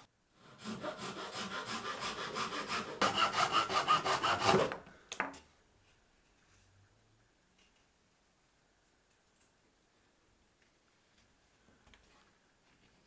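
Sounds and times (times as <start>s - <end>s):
hand saw cutting stick: 0.4s - 4.8s.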